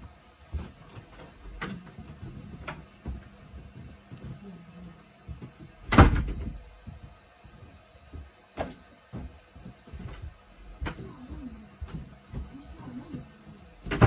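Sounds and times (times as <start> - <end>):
light knocks and bumps: 5.2 - 14.0.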